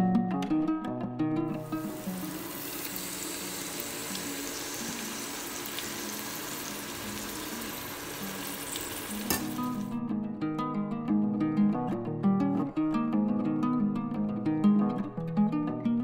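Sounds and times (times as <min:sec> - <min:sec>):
masala sizzling in oil: 0:01.6 - 0:09.9.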